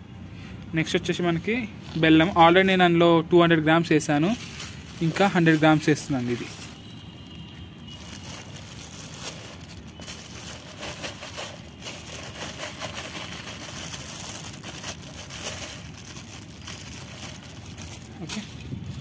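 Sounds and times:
plastic bag crinkling: 3.7s - 19.0s
small crackles: 4.3s - 19.0s.

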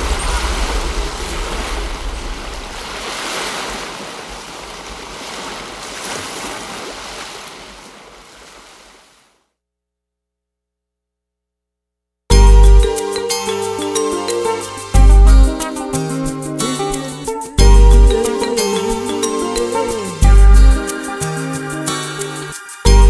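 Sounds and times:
deep rumble: 0.0s - 3.1s
steady rushing noise: 0.0s - 4.9s.

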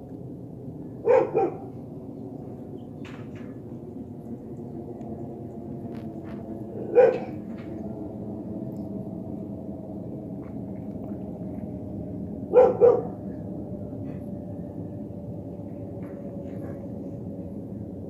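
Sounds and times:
low rumble: 0.0s - 18.0s
dog barking: 1.0s - 1.6s, 6.8s - 7.4s, 12.5s - 13.1s.

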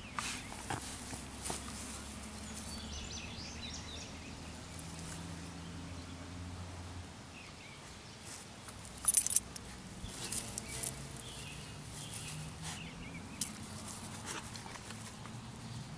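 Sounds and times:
dog rustling in grass: 0.0s - 5.5s, 8.2s - 15.2s.

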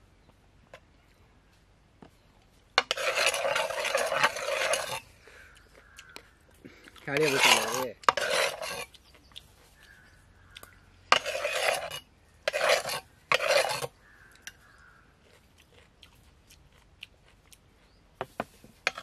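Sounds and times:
ice scraping against metal: 2.8s - 5.1s, 7.0s - 8.9s, 11.1s - 14.0s.

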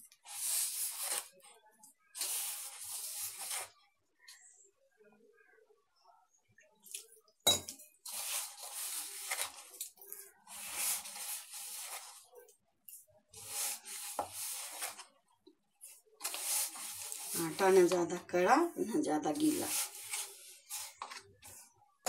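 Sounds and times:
hands kneading crumbly dough: 16.2s - 18.2s.

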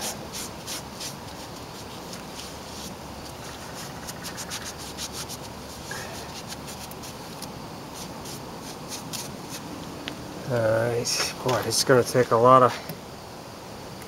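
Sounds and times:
cloth rag scrubbing engine block: 0.0s - 9.7s.

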